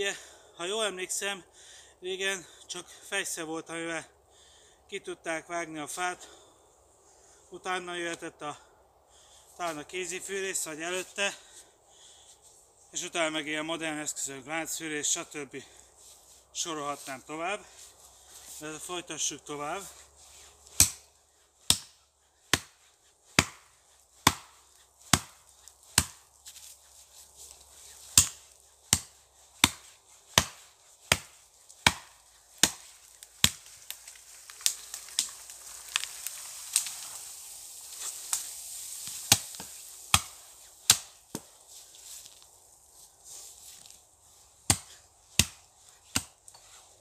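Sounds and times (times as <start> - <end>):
axe chopping into tree trunk: 20.7 - 26.2, 28.1 - 33.7, 39.0 - 41.5, 44.7 - 46.4.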